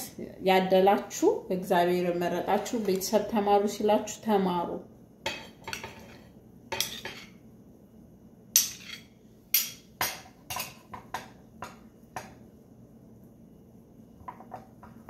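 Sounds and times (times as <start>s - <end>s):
dishes clinking and knocking: 5.2s - 7.4s, 8.6s - 12.4s, 14.2s - 15.0s.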